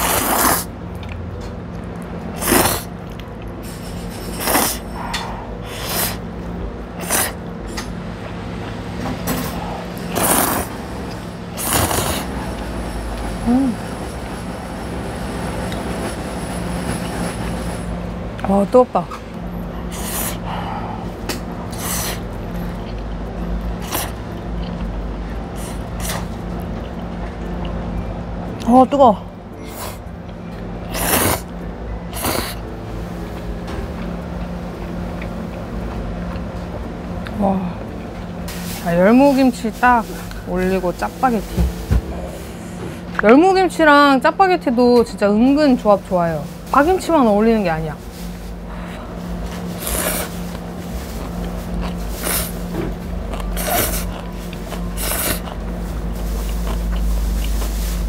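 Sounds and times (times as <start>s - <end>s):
person slurping noodles: 0.0s - 0.7s, 2.4s - 2.9s, 3.7s - 6.3s, 7.0s - 7.4s, 9.4s - 10.8s, 11.5s - 12.4s, 30.9s - 31.5s, 32.1s - 32.6s, 48.8s - 50.6s, 51.7s - 52.7s, 53.3s - 58.0s
steady low hum: 0.0s - 58.0s
quiet chewing: 53.2s - 58.0s.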